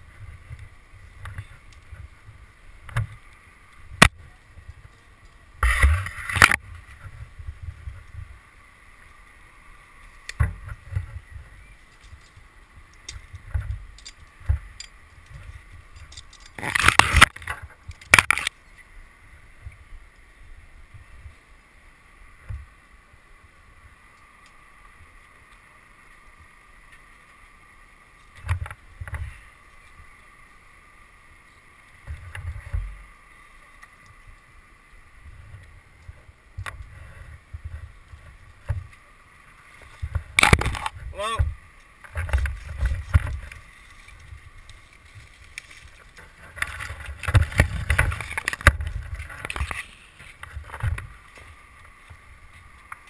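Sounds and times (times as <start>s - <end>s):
faint steady whine: 0.0s - 53.0s.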